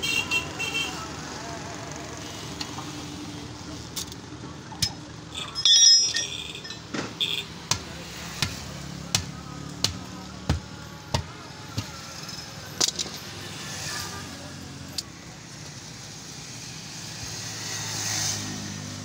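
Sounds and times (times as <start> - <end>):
hammer clanging on metal rim: 4.8 - 7.0
hammer knocking on tyre: 7.6 - 12.0.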